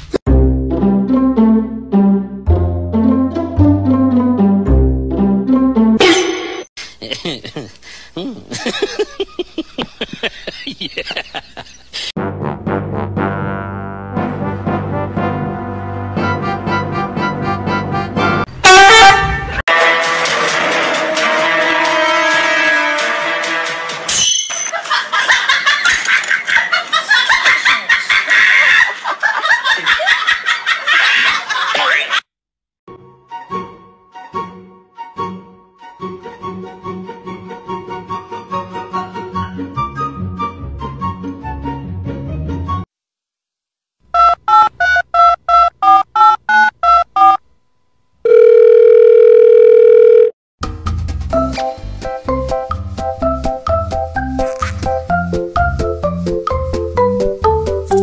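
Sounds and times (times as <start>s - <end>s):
people laughing: 6.8s - 12.1s, 24.7s - 32.2s
telephone line tone: 48.2s - 50.4s
snatch of music: 54.4s - 55.0s.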